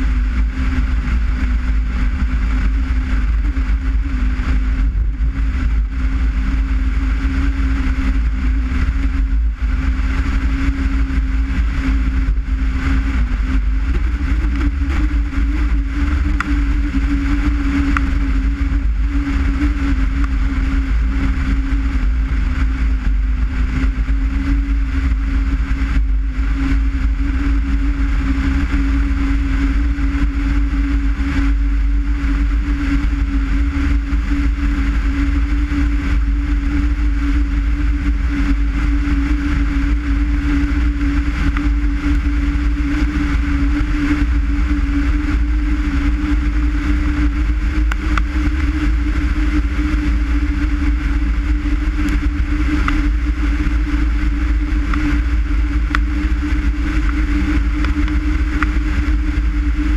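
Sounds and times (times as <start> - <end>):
car engine droning: 0.0 - 59.9
road and wind noise: 0.0 - 59.9.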